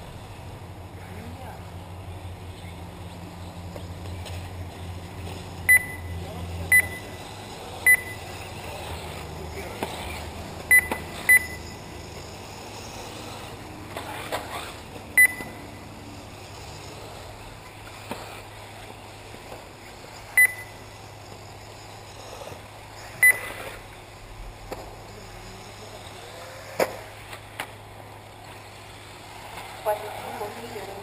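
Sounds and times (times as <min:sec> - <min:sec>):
low background noise: 0:00.0 - 0:31.0
short electronic beeps: 0:05.7 - 0:07.2, 0:07.8 - 0:08.3, 0:10.7 - 0:11.8, 0:15.2 - 0:15.7, 0:20.4 - 0:20.9, 0:23.2 - 0:23.6.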